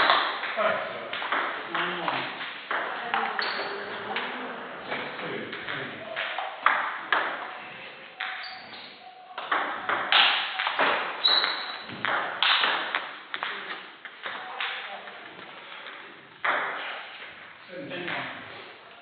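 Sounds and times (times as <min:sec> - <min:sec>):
table tennis ball hits: 0:00.0 - 0:04.3, 0:04.9 - 0:07.5, 0:09.4 - 0:17.0.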